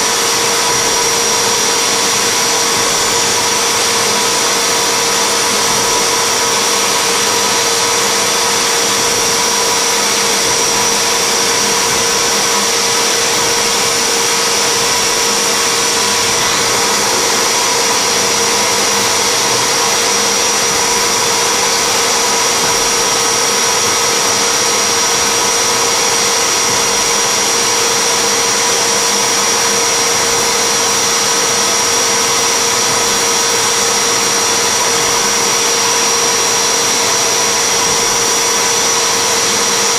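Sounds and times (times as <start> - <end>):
machine spindle hiss and whine: 0.0 - 39.9.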